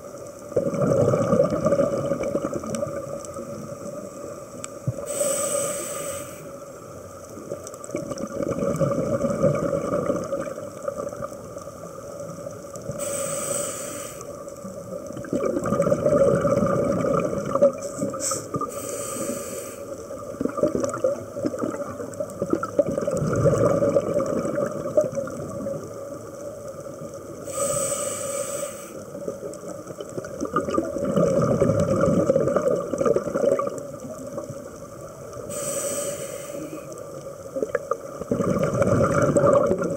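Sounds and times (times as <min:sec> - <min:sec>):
faint steady hum: 0:00.0 - 0:39.9
low bubbling underwater: 0:00.5 - 0:03.2, 0:07.9 - 0:11.4, 0:15.1 - 0:18.7, 0:20.2 - 0:25.9, 0:30.0 - 0:34.6, 0:37.5 - 0:39.9
regulator hiss on inhale: 0:03.7 - 0:07.0, 0:12.8 - 0:14.6, 0:17.8 - 0:20.2, 0:27.3 - 0:29.3, 0:35.4 - 0:37.2.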